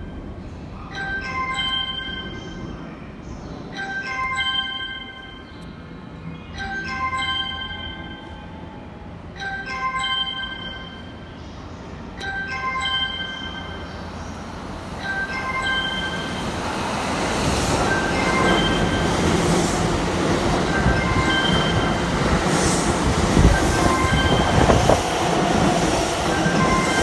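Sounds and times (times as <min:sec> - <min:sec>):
bell-like platform chime: 0:00.9 - 0:02.8, 0:03.7 - 0:05.7, 0:06.3 - 0:11.4, 0:12.2 - 0:14.0, 0:15.0 - 0:16.5, 0:23.8 - 0:25.0.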